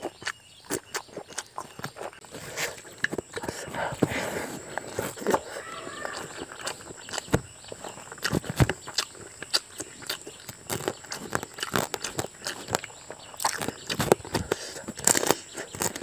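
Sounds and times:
chewing and lip smacks: 0:00.0 - 0:16.0.

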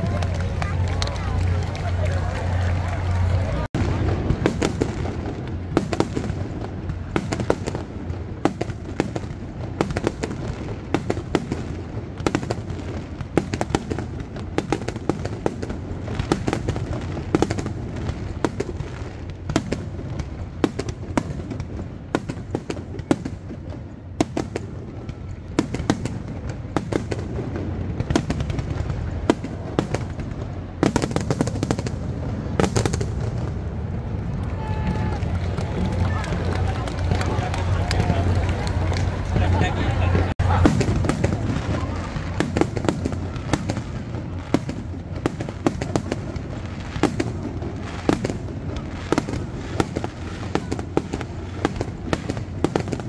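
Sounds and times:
fireworks bursting and crackling: 0:00.0 - 0:53.0.

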